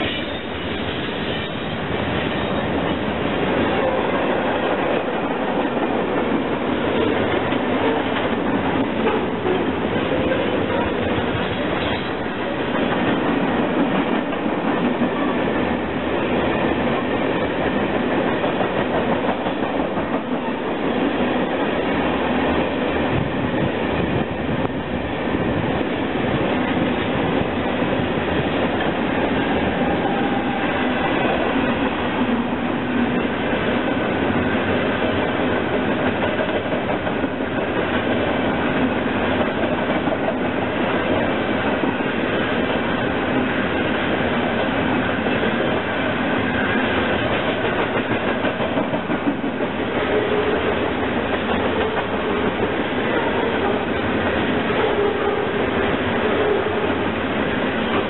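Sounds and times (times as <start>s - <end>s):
freight train rolling past: 0.0s - 58.0s
wheels clicking over rail joints: 47.2s - 50.5s.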